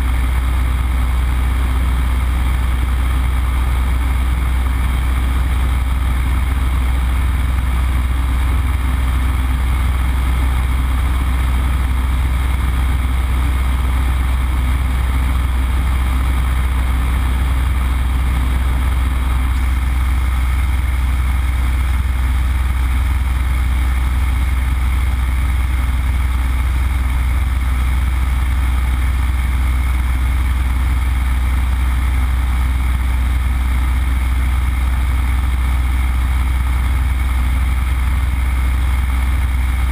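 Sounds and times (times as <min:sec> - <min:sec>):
radial aircraft engine drone: 0:00.0 - 0:39.9.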